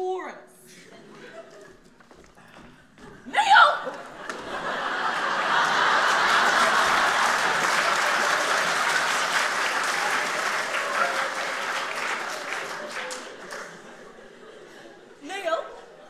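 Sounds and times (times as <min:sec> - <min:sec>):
audience applauding: 0:04.0 - 0:14.3.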